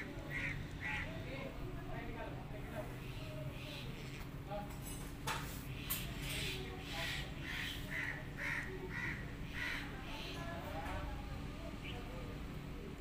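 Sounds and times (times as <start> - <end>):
crow cawing: 0.0 - 1.2, 7.0 - 10.3.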